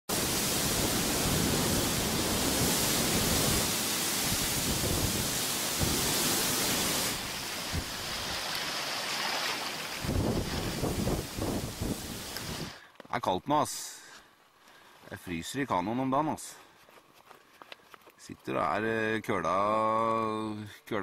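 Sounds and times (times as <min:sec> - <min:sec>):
strong wind over rough water: 0:00.1 - 0:08.4, 0:10.0 - 0:12.8
wind rumbling on microphone: 0:00.1 - 0:08.5, 0:10.0 - 0:12.8.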